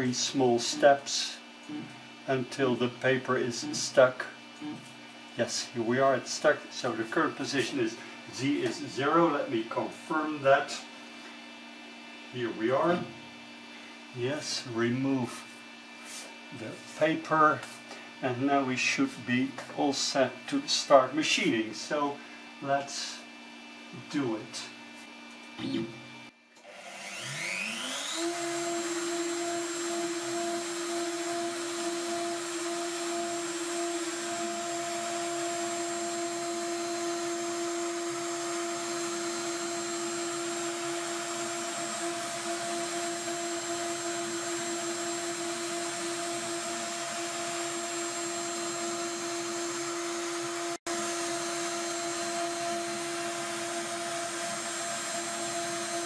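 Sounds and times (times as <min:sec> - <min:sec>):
milling spindle whine: 0:27.0 - 0:56.0.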